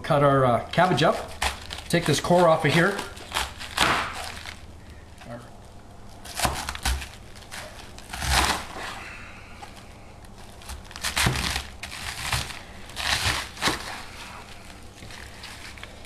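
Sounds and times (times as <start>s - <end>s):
knife cutting through cabbage: 0.8s - 4.6s, 6.2s - 9.8s, 10.4s - 16.0s.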